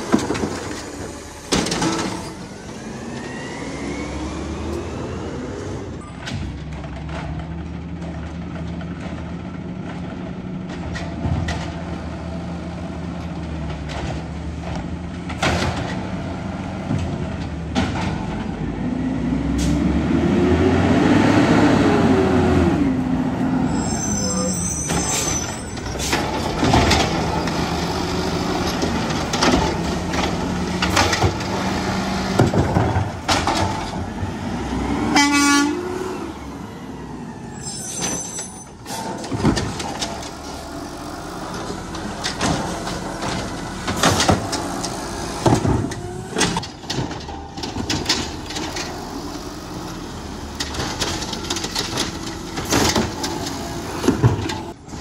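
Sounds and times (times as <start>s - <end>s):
diesel engine idling and revving: 0.0s - 24.8s, 25.4s - 37.7s, 38.7s - 55.0s
short high squeals: 23.6s - 26.1s, 37.5s - 39.0s.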